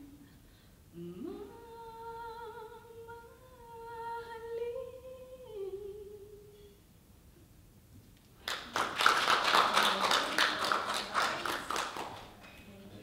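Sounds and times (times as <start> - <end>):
woman singing a long held note: 1.0 - 6.8.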